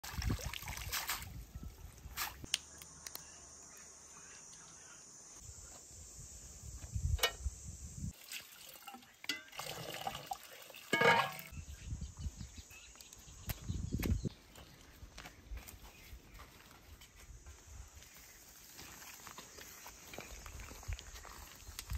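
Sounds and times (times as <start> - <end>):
water splashing and trickling: 0.0 - 2.5, 8.1 - 11.6
knocks and clinks from handling: 10.9 - 11.5.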